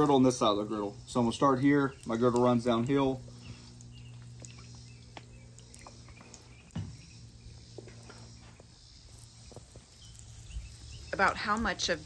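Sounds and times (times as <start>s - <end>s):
steady low hum: 0.0s - 12.0s
dull thump: 6.7s - 7.1s.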